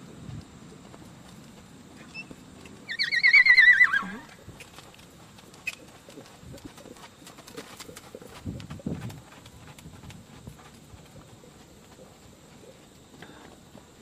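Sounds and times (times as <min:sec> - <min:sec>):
horse whinnying: 0:02.9 - 0:04.4.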